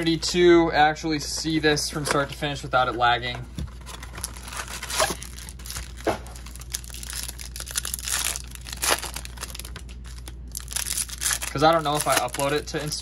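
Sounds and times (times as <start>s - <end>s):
card pack wrappers crinkling: 3.8s - 13.0s.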